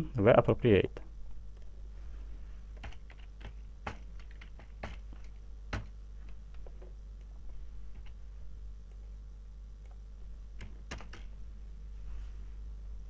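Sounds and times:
faint low hum: 0.0s - 13.0s
computer keyboard typing: 2.8s - 5.9s, 10.6s - 11.3s.

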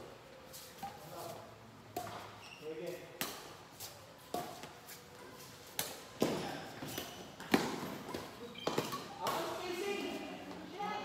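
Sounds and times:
rackets hitting shuttlecock: 1.9s - 2.4s, 3.1s - 3.6s, 4.3s - 4.8s, 5.7s - 9.6s.

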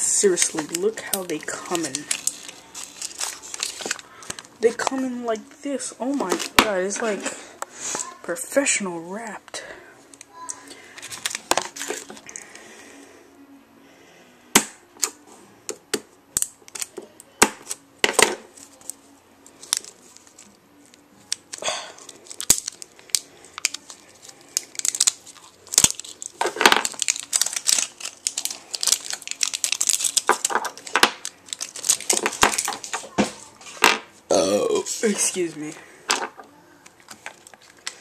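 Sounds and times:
plastic packaging tearing and crackling: 0.0s - 7.2s, 10.1s - 12.6s, 16.4s - 17.0s, 17.6s - 33.8s, 36.8s - 38.0s.

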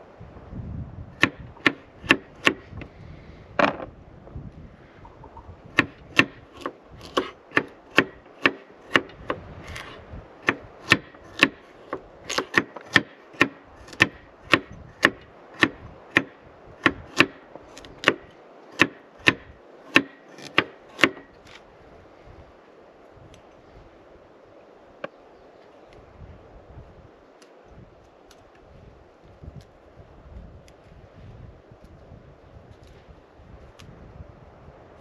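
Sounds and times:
knife chopping on wooden board: 5.8s - 21.3s.

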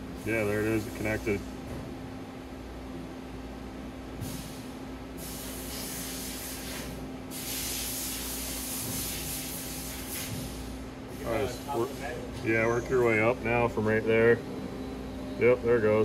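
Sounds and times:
low machine hum: 0.0s - 5.2s, 10.7s - 16.0s.

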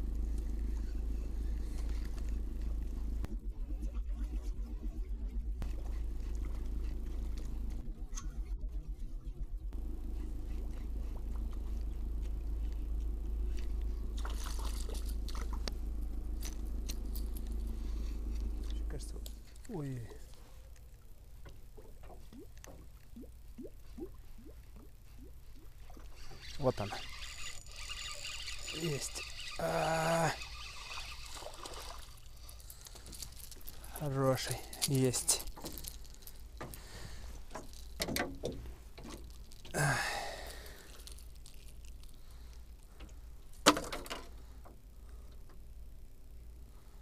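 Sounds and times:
small clicks and knocks: 37.5s - 39.8s, 41.0s - 45.6s
breathy exhale: 39.7s - 41.1s.

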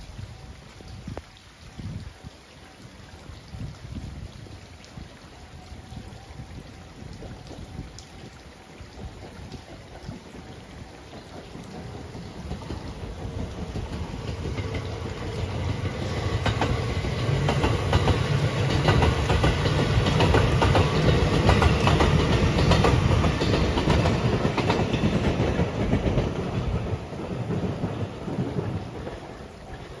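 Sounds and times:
rain hiss: 0.0s - 30.0s
wheels clacking over rail joints: 9.2s - 30.0s
electric train passing: 9.3s - 30.0s.

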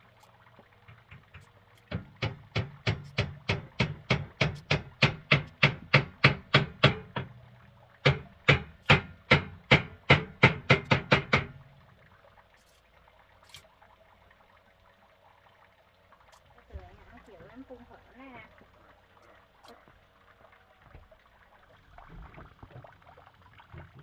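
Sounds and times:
rapid knocking blows: 0.8s - 7.3s, 8.0s - 11.6s.

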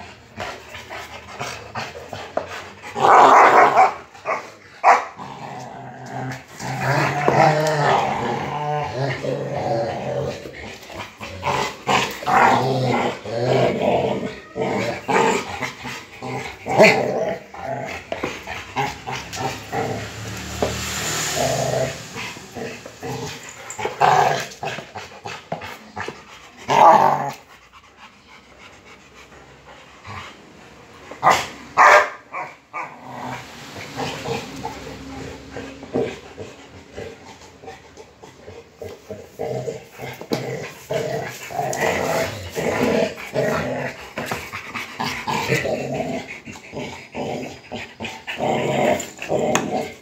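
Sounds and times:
dogs growling: 0.0s - 50.0s
dog barking: 31.8s - 32.2s.

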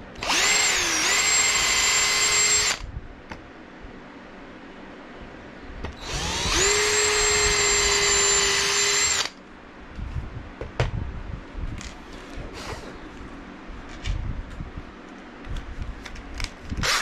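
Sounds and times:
cordless drill whining: 0.2s - 2.8s, 6.0s - 9.4s, 16.8s - 17.0s.

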